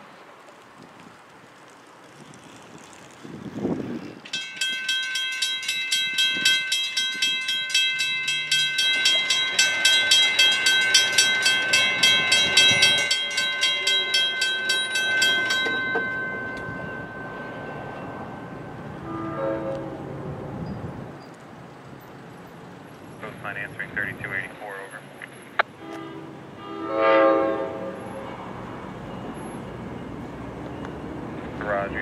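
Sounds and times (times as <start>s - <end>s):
railroad crossing bell ringing: 4.3s - 21.3s, 25.8s - 32.0s.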